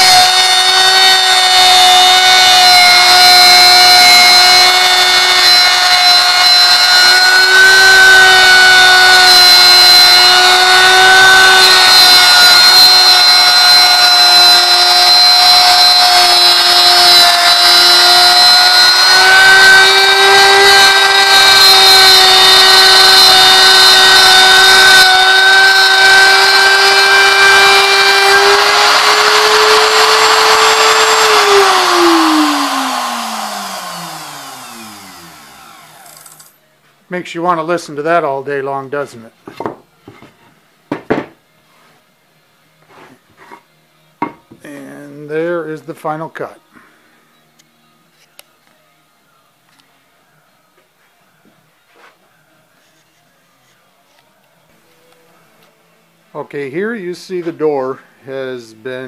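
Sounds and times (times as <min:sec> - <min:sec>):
router bit chewing wood: 0:00.0 - 0:36.4
electric router whining: 0:00.0 - 0:36.5.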